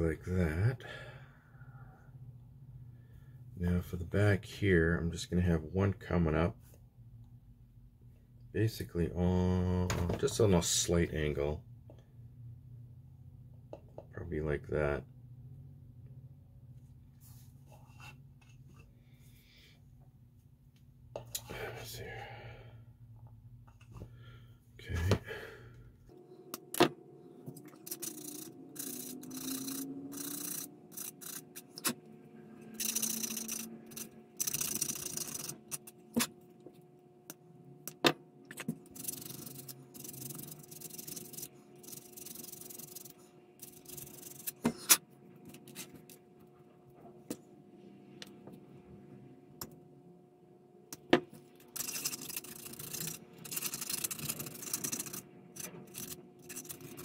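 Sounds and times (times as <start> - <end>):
faint steady hum: 0.0 - 57.0.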